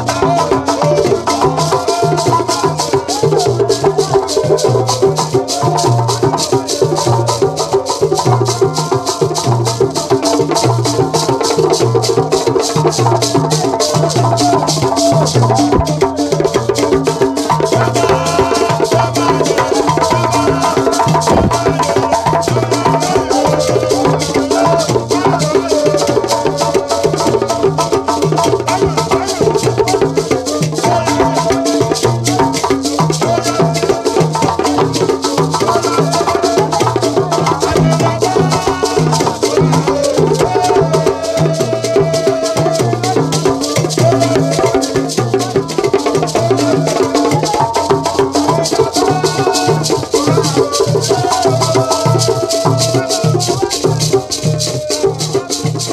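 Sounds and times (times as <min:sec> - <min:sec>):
drums and shakers rhythm: 0:00.0 - 0:55.9
gourd shakers: 0:00.0 - 0:55.9
men singing and chanting: 0:00.0 - 0:55.9.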